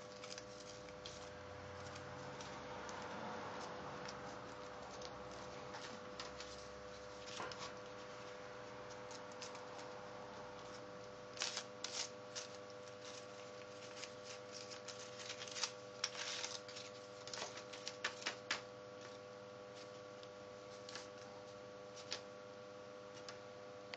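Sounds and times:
paper crinkling and clicking: 0:00.0 - 0:22.3.

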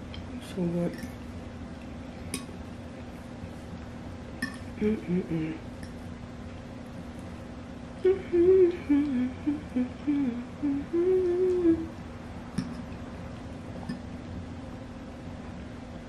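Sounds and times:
woman humming while chewing: 0:04.8 - 0:05.7, 0:08.0 - 0:12.0.

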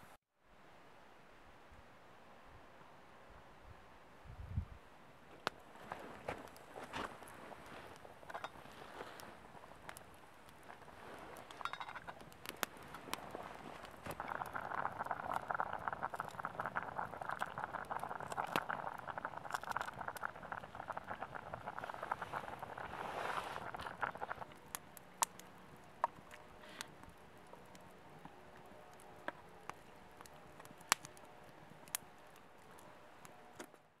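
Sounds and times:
water boiling hard: 0:05.7 - 0:25.3.

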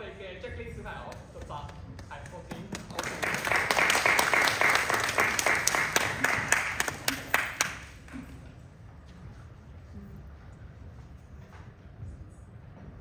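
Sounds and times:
audience applauding: 0:02.0 - 0:08.2.

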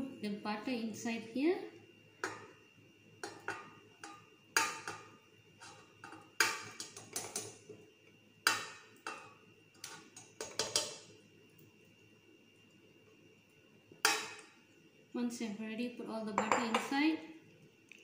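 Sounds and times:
kitchenware clinks and knocks: 0:16.4 - 0:16.9.

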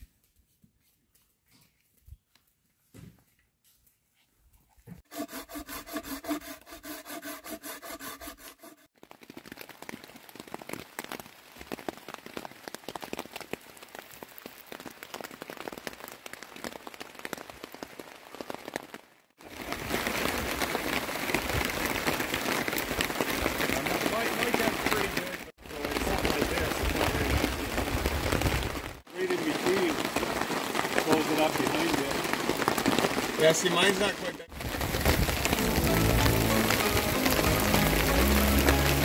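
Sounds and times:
heavy rain on tarps: 0:08.9 - 0:39.0
rain pattering on tent fabric: 0:08.9 - 0:39.0.

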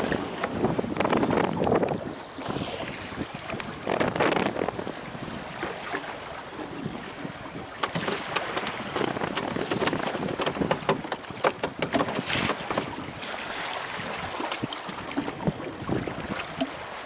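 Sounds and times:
water washing against boat hull: 0:00.0 - 0:17.0
wind on microphone: 0:00.0 - 0:17.0
sharp clicks and knocks: 0:07.8 - 0:12.9.

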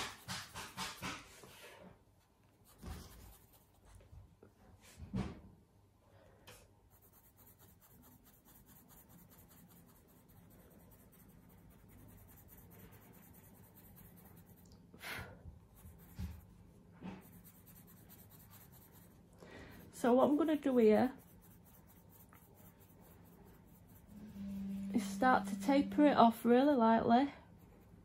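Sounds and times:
pencil scratching on paper: 0:00.0 - 0:01.7, 0:02.6 - 0:03.9, 0:06.9 - 0:14.7, 0:15.7 - 0:26.2.

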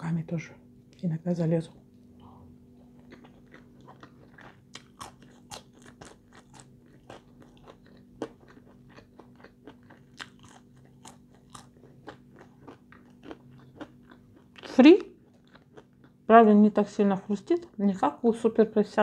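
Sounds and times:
chewing fries: 0:02.7 - 0:16.3.

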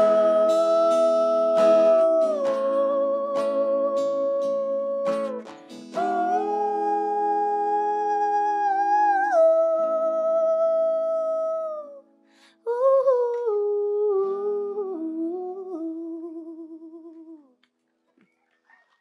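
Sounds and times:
acoustic guitar chords: 0:00.0 - 0:12.5
woman singing wordless notes: 0:00.0 - 0:17.5.

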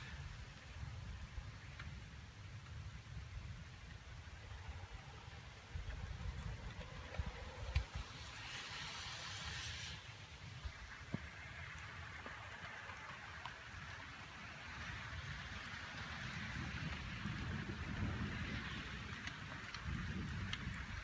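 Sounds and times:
steady rain hissing: 0:00.0 - 0:21.0
low thunder rumble: 0:10.3 - 0:21.0.

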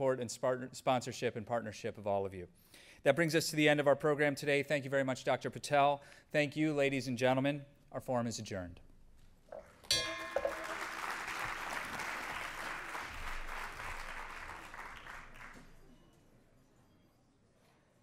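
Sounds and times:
brass bell ringing: 0:09.9 - 0:11.3
audience applauding: 0:10.2 - 0:15.8.

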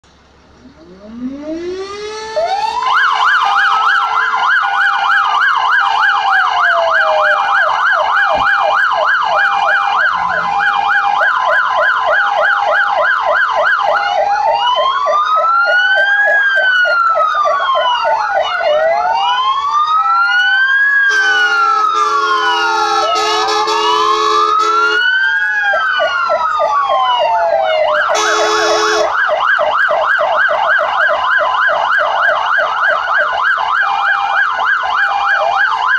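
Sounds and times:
fire engine sirens: 0:00.1 - 0:35.9
horn blasts: 0:21.1 - 0:25.0, 0:28.1 - 0:29.1.

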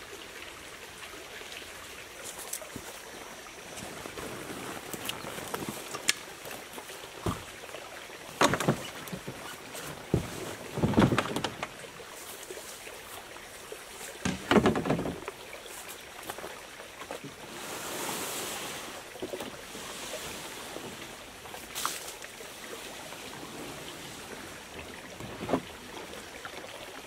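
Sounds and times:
gear knocking against canoe hull: 0:07.2 - 0:07.6, 0:08.3 - 0:12.1, 0:14.2 - 0:15.4
soft swishing hiss: 0:15.6 - 0:26.3.

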